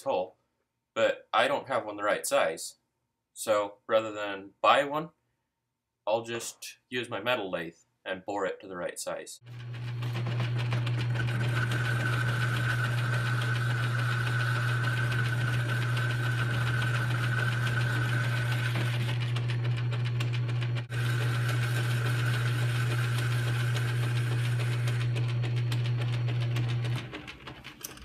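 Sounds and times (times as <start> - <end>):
metal lathe humming: 9.5 - 26.9.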